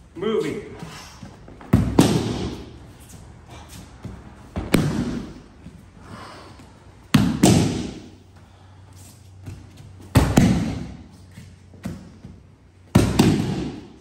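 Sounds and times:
body thudding on mats: 4.0s - 5.8s.

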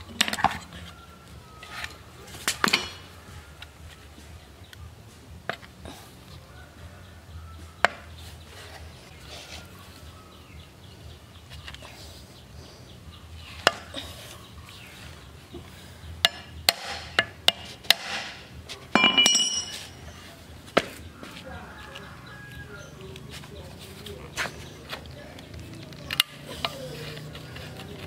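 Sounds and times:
ringing metal scrape: 19.0s - 20.3s.

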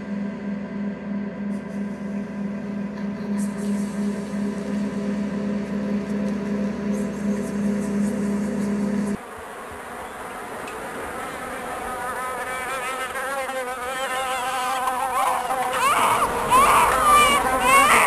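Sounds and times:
steady low hum: 0.0s - 9.2s
insect-like buzz: 0.0s - 18.0s.

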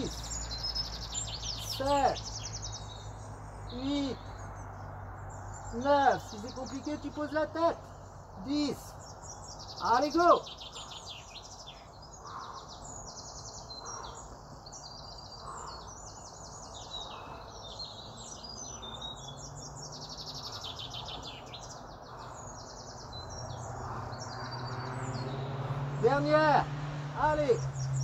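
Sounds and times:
songbirds trilling and chirping: 0.0s - 28.0s.

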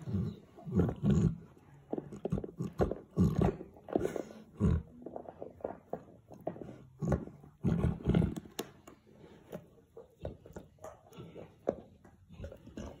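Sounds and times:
dog gnawing a bone: 0.0s - 13.0s.

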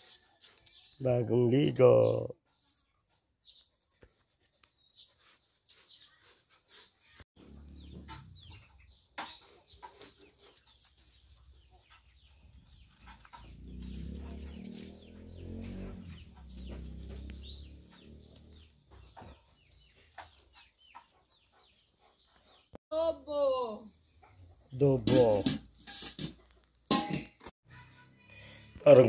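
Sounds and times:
bird clucks and chirps: 6.6s - 22.8s.

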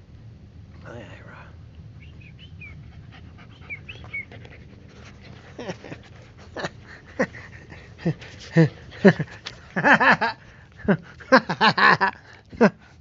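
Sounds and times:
dogs squeaking: 2.1s - 4.5s
dogs yipping and barking: 2.1s - 6.5s.

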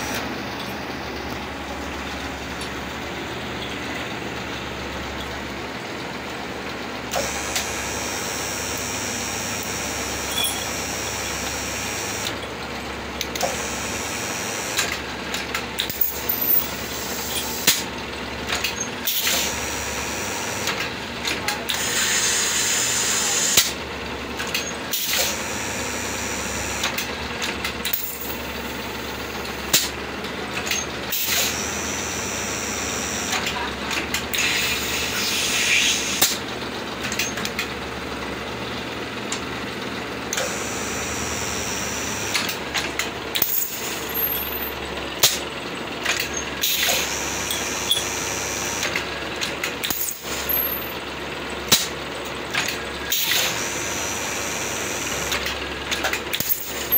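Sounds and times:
machine motor hum: 0.0s - 56.9s
sharp machine clacks: 13.1s - 37.8s, 40.2s - 56.9s.

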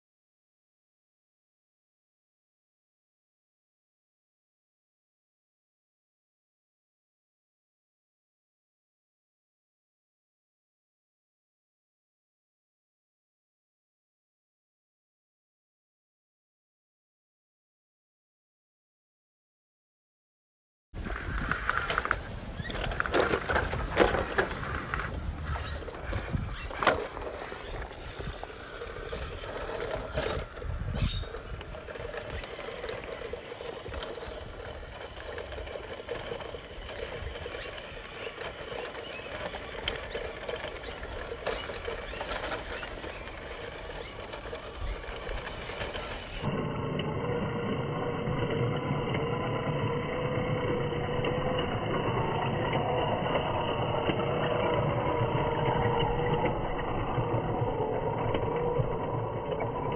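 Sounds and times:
small electric motor whining: 21.0s - 59.9s.

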